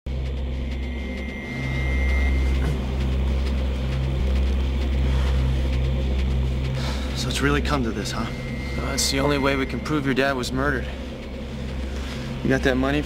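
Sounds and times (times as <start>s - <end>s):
low droning rumble: 0.1s - 13.0s
faint thin high tone: 0.8s - 2.8s, 8.1s - 10.9s.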